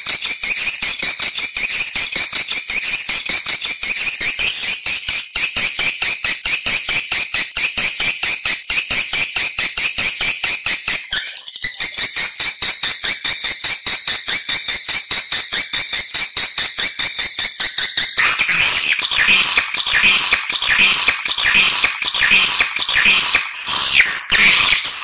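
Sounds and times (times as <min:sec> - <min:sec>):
swiftlet twittering chirps: 0:18.2 - 0:25.0.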